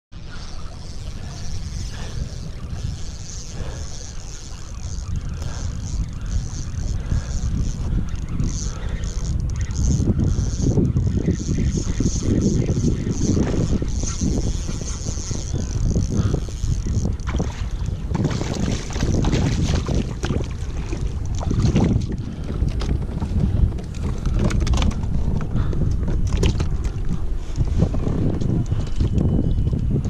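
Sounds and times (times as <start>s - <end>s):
wind buffeting microphone: 0.1s - 30.0s
water lapping against hull: 0.2s - 30.0s
water splashes: 17.3s - 22.2s.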